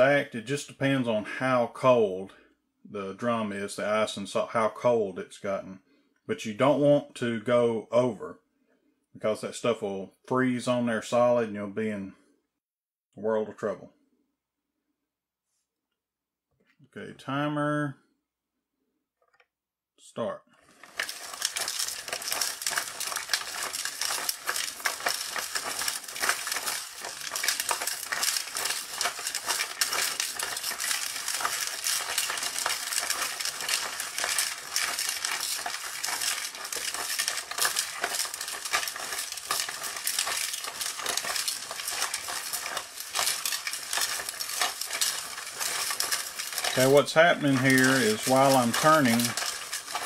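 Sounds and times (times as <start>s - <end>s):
ice and salt rattling in drum: 0.0s - 1.8s, 20.6s - 50.0s.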